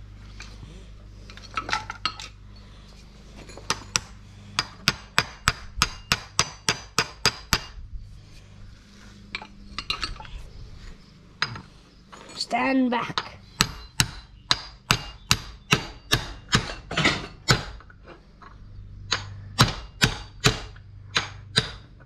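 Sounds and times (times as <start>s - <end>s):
metal clinks: 1.2s - 4.0s.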